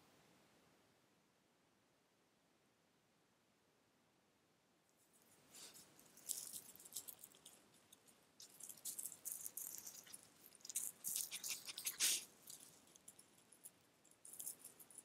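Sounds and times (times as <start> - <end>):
animals rustling through dry leaves: 8.6 - 13.0.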